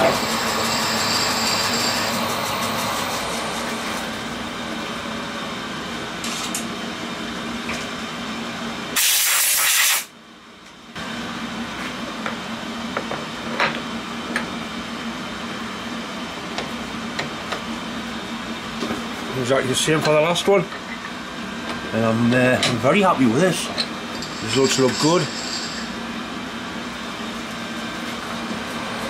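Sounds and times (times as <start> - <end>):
milling machine spindle hum: 0.0 - 9.0, 10.9 - 29.0
compressed air hiss: 9.0 - 10.1.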